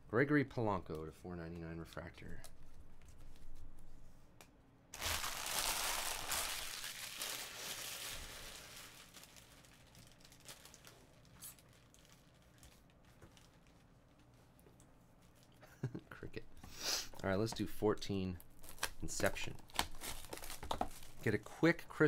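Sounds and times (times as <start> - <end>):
plastic packaging crinkling: 5.0 - 14.6, 18.6 - 21.4.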